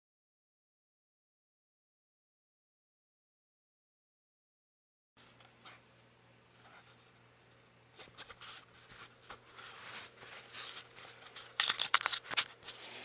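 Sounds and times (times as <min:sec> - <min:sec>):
rustling handling noise: 0:07.9 - 0:13.0.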